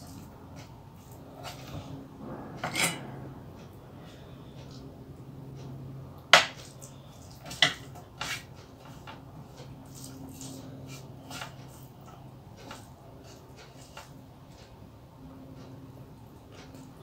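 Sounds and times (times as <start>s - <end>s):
low steady hum: 0.0s - 17.0s
metal tableware clinking: 2.6s - 3.2s.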